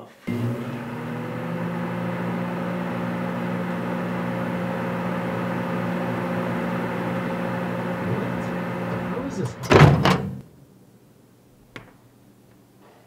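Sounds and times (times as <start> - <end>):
microwave fan whir: 0.3 - 10.4
microwave oven hum: 0.3 - 10.4.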